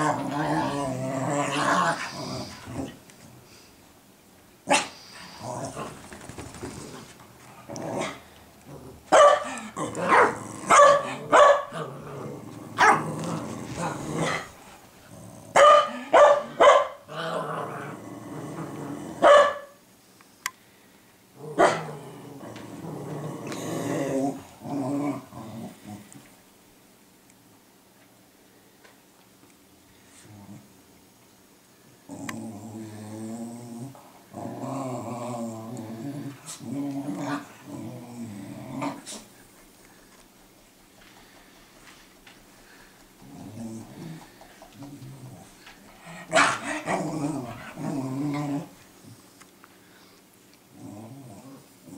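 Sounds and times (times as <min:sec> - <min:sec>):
dog growling: 0:00.0 - 0:03.1, 0:05.2 - 0:19.3, 0:21.4 - 0:26.3, 0:32.1 - 0:39.4, 0:42.7 - 0:49.2, 0:50.7 - 0:51.9
puppies scuffling: 0:05.8 - 0:07.6
dogs barking: 0:09.1 - 0:11.8, 0:12.8 - 0:13.1, 0:15.5 - 0:17.0, 0:19.2 - 0:19.8, 0:21.6 - 0:21.9, 0:46.3 - 0:46.8.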